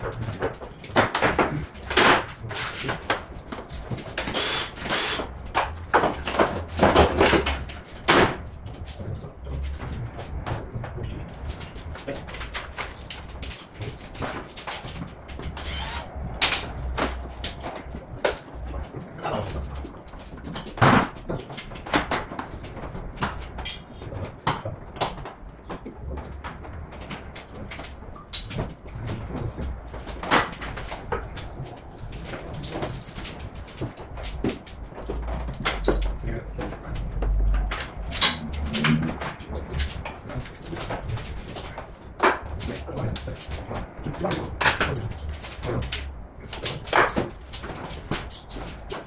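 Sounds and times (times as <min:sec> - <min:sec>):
metallic knocks and clanks of tools: 0:00.0 - 0:08.9, 0:13.4 - 0:18.9, 0:23.2 - 0:25.9, 0:28.2 - 0:28.7, 0:32.2 - 0:43.6, 0:44.5 - 0:49.0.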